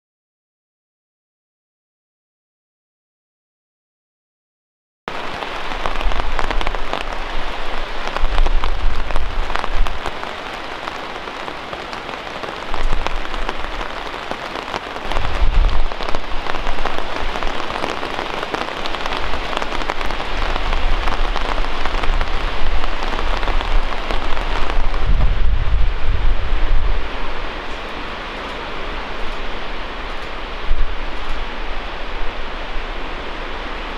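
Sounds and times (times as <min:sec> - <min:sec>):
heavy rain pattering: 0:05.1 - 0:33.9.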